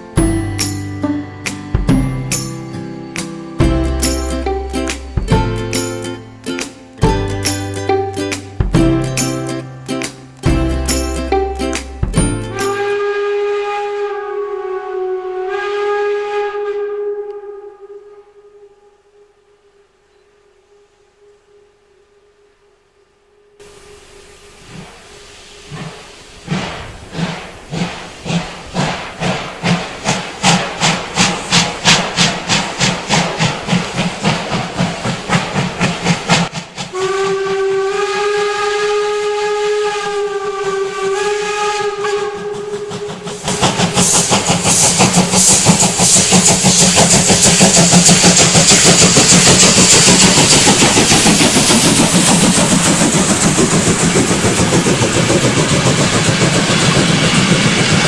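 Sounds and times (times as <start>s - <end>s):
train coaches rolling past: 0.0s - 16.8s, 23.6s - 58.0s
steam locomotive exhaust beats: 0.0s - 18.6s, 23.6s - 58.0s
chord steam whistle: 12.3s - 22.8s, 29.6s - 58.0s
steam hissing: 23.6s - 58.0s.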